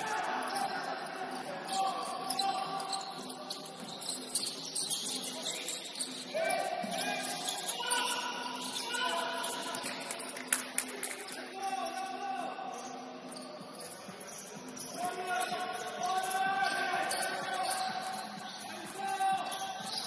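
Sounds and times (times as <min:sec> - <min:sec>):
players' voices and calls: 0:00.0 - 0:20.0.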